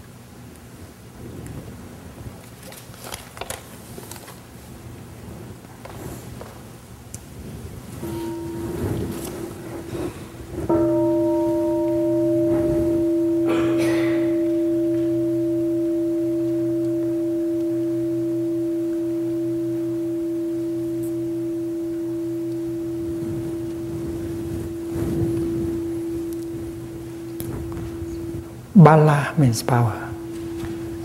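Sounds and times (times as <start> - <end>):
temple bell ringing: 8.0 - 31.0.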